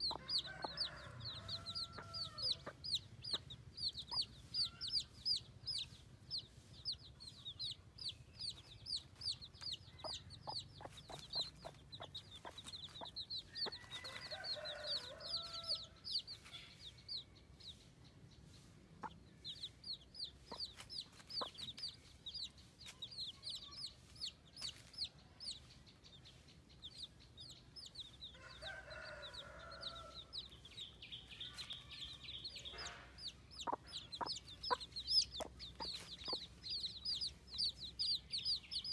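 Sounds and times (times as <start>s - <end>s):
baby chicks peeping: 0.0s - 38.9s.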